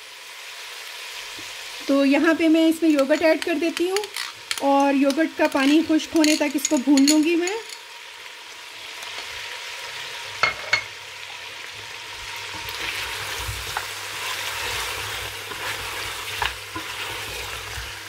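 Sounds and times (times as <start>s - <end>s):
meat sizzling in hot oil: 0.0s - 18.0s
wooden spatula scraping: 12.2s - 18.0s.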